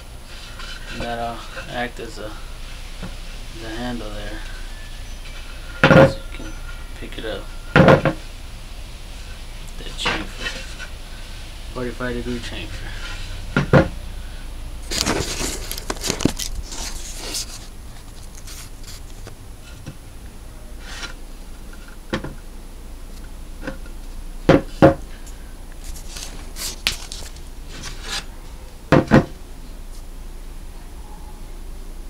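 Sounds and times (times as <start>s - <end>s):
wooden board knocks: 7.8s - 8.2s, 24.5s - 25.0s, 28.9s - 29.4s
wooden board rubbing and scraping: 9.9s - 10.9s, 14.9s - 20.0s, 20.8s - 22.3s, 25.8s - 28.3s.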